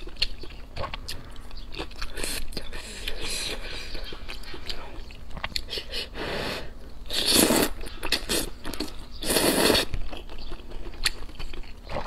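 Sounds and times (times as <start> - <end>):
wet chewing: 0.0 - 6.0, 7.2 - 12.0
person slurping noodles: 6.1 - 8.5, 9.2 - 9.9.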